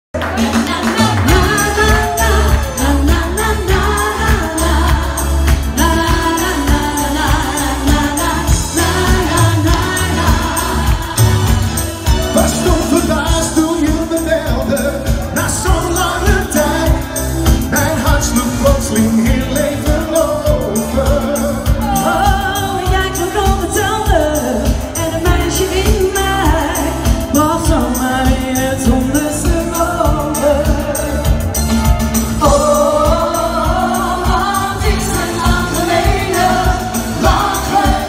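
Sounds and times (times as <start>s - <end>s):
amplified backing track: 0.1s - 38.0s
woman singing: 0.2s - 12.3s, 19.2s - 31.4s, 32.4s - 38.0s
man singing: 11.8s - 31.6s, 32.3s - 38.0s.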